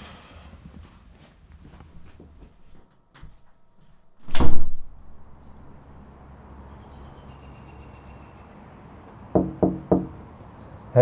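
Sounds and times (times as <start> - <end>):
loud thud: 4.2 - 5.4.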